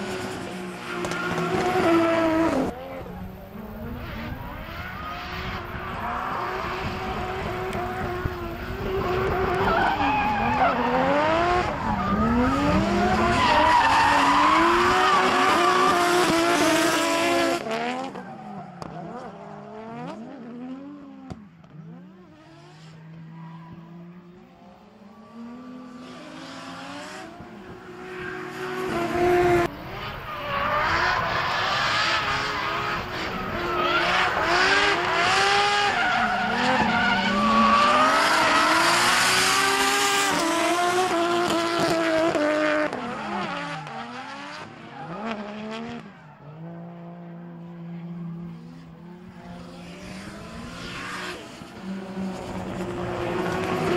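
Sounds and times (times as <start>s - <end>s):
car engines revving: 0.0s - 53.9s.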